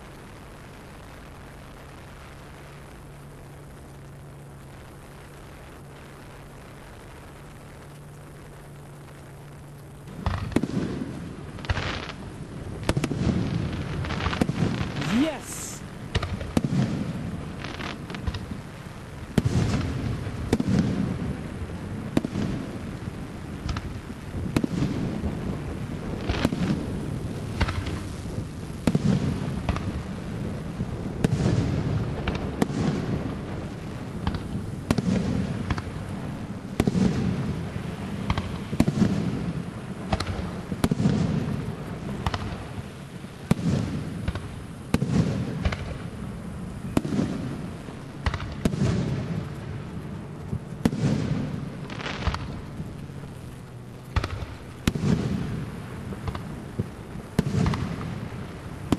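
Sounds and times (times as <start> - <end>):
low rolling rumble: 15.8 - 58.9.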